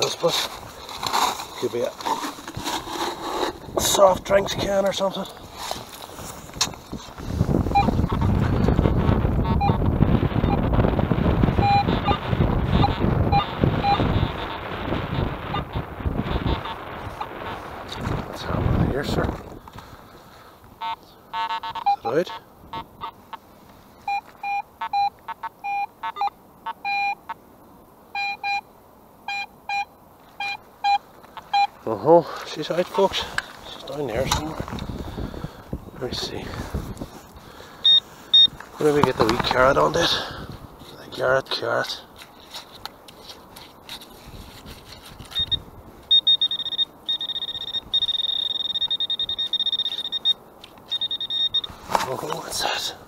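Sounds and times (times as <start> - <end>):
probe scraping in wet gravel: 0.0 - 7.6, 38.0 - 40.2, 40.8 - 45.6
metal detector beeping: 7.7 - 9.8, 10.4 - 10.7, 11.6 - 14.6, 20.8 - 23.2, 24.0 - 27.4, 28.1 - 31.8, 37.8 - 40.0, 45.2 - 52.4.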